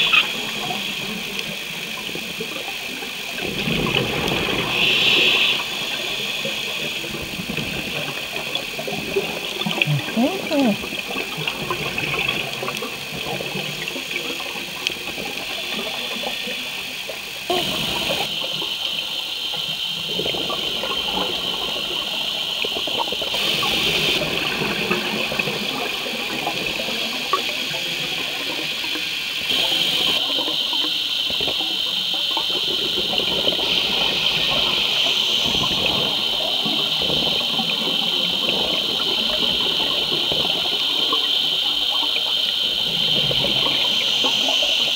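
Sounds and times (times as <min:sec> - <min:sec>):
underwater hiss: 0:00.0 - 0:44.9
water gurgling and bubbling: 0:00.0 - 0:44.9.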